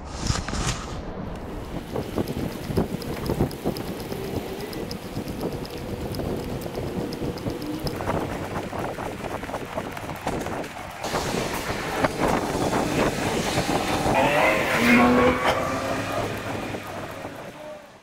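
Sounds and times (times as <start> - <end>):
car passing: 11.1 - 18.0.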